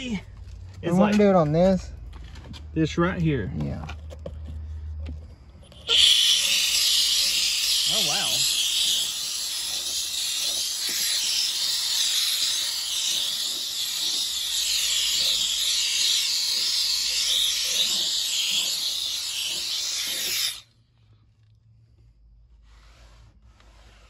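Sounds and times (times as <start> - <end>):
steam cleaner hissing: 5.8 - 20.6.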